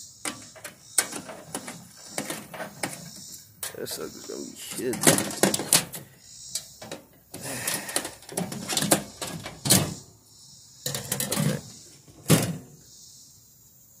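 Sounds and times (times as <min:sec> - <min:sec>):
metal parts knocking and scraping: 0:00.2 - 0:10.0, 0:10.8 - 0:12.7.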